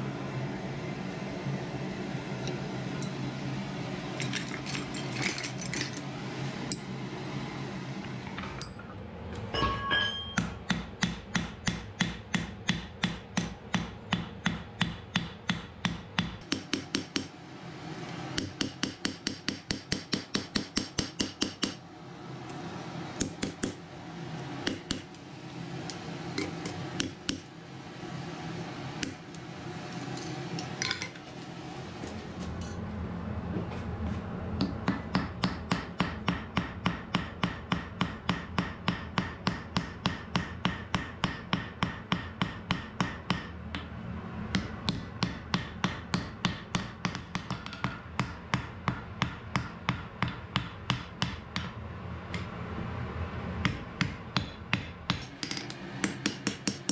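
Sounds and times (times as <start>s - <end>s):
steady low hum: 0.0s - 56.9s
hammer blows on anvil: 9.5s - 11.8s.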